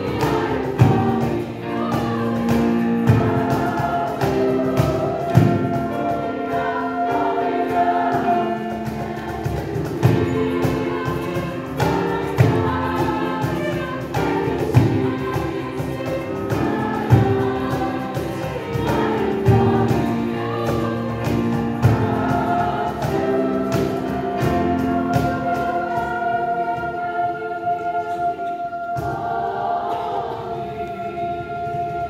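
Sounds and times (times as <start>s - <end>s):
choir singing in chords: 0.0s - 32.0s
piano: 0.0s - 32.0s
cajon beat: 7.9s - 26.1s.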